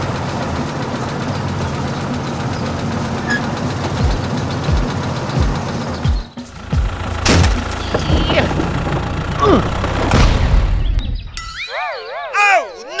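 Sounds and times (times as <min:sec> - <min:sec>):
low thuds: 0:06.6 - 0:11.3
toy excavator motor humming: 0:06.8 - 0:09.9.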